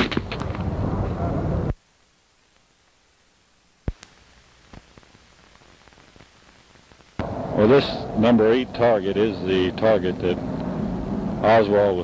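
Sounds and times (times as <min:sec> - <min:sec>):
loud noise cut off: 0:07.2 - 0:12.0.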